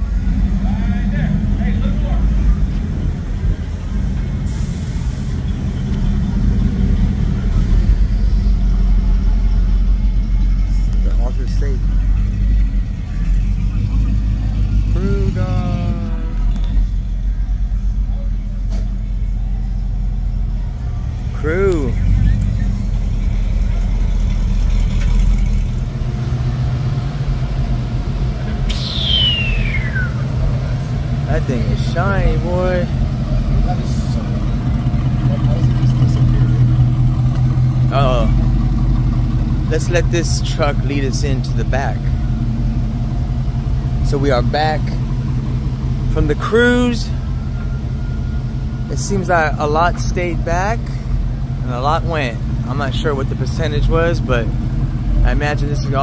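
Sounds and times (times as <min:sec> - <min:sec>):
truck engine rumbling: 0:00.0 - 0:56.0
high falling whistle: 0:28.7 - 0:30.3.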